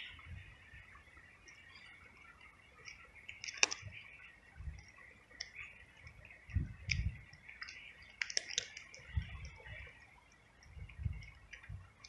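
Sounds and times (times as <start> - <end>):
wind buffeting microphone: 0.0 - 1.3, 3.6 - 12.0
kitten crunching dry food: 7.6 - 9.2.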